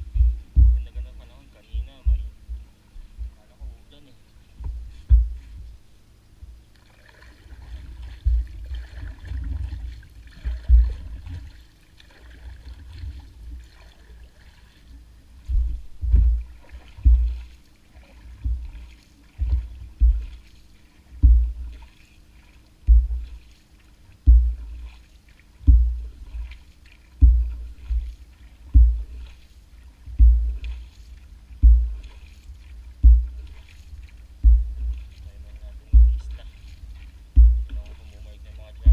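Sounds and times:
low thump: 0.0 - 1.0, 2.0 - 2.6, 4.6 - 5.7, 8.2 - 8.6, 10.5 - 11.5, 15.5 - 17.5, 18.4 - 18.7, 19.4 - 20.4, 21.2 - 21.8, 22.8 - 23.4, 24.2 - 24.8, 25.6 - 26.5, 27.2 - 29.3, 30.1 - 30.8, 31.6 - 32.1, 33.0 - 33.6, 34.4 - 35.1, 35.8 - 38.0
paddle water swishes and splashes: 0.0 - 38.9.

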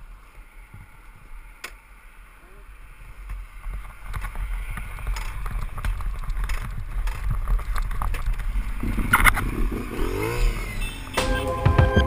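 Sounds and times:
low wind: 0.0 - 12.0
road rumble: 0.0 - 12.0
rising pitched note: 11.2 - 12.0.

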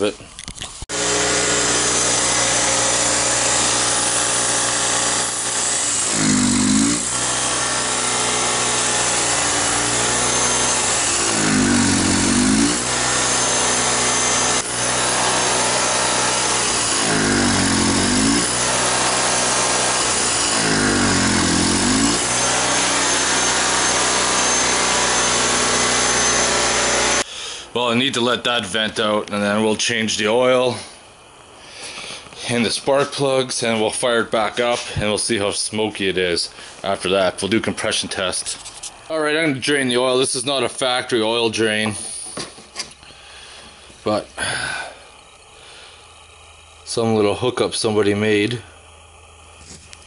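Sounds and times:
generator engine running: 0.9 - 27.3.

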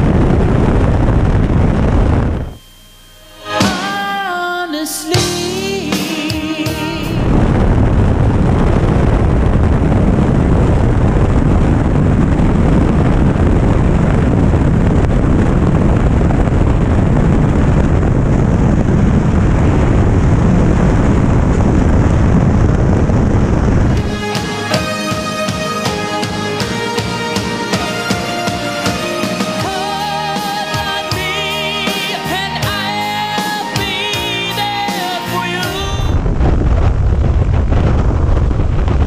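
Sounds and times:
background music: 3.0 - 7.4, 24.0 - 36.2
airflow rushing: 5.1 - 39.0
airplane engine: 6.9 - 32.6.

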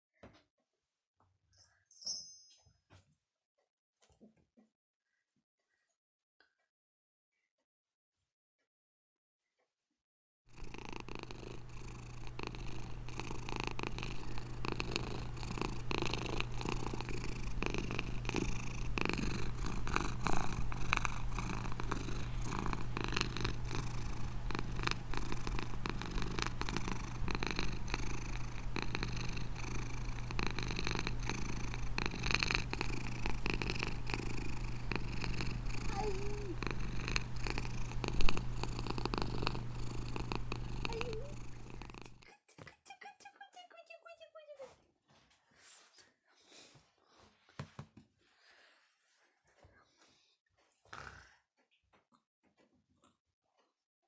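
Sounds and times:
cat purring: 10.5 - 42.4, 49.3 - 51.4.

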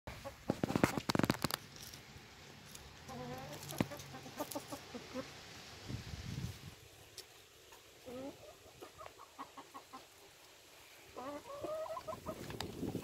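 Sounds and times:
hens clucking: 0.1 - 1.6, 2.9 - 5.5, 7.6 - 13.0.

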